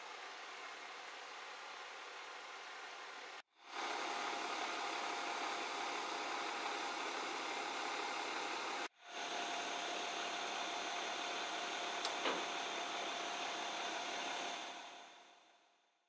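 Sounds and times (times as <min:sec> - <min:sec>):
engine idling with high whine: 0:00.0 - 0:15.8
click: 0:12.0 - 0:12.4.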